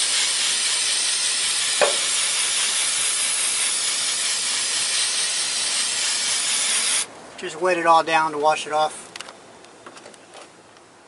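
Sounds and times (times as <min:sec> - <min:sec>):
aerosol spray hissing: 0:00.0 - 0:07.1.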